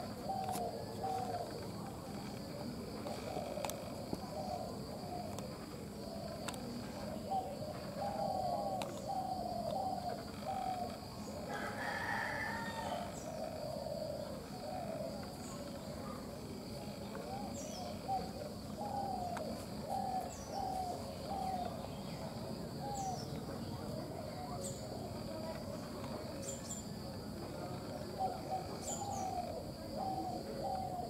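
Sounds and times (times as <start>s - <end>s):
bird repeating low slurred notes: 0.0s - 11.5s, 25.9s - 31.0s
high insect drone: 0.0s - 31.0s
rooster crowing: 11.5s - 13.3s.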